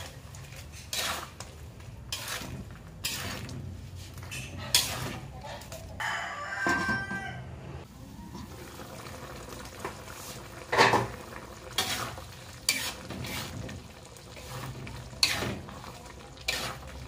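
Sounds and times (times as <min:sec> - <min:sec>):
metal spatula scraping a wok: 0:00.0 - 0:06.0, 0:10.2 - 0:17.0.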